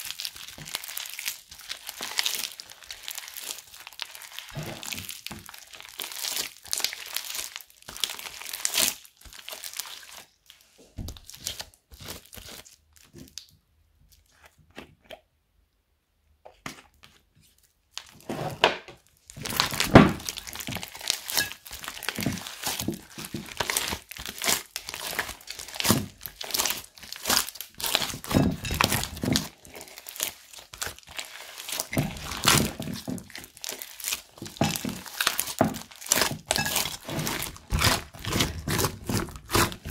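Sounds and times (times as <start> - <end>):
slime crackling and squelching: 0.0 - 14.6, 17.1 - 18.3, 19.0 - 39.9.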